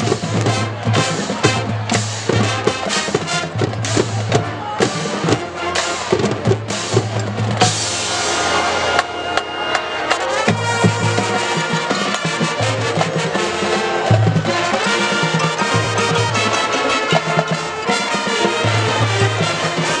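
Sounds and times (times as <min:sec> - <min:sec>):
low brass: 0:00.0 - 0:20.0
held brass chord: 0:04.4 - 0:20.0.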